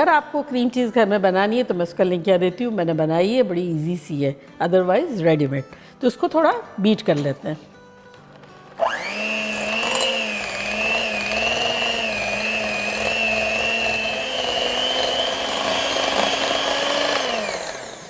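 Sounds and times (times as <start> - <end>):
electric hand mixer whine: 8.8 - 18.0.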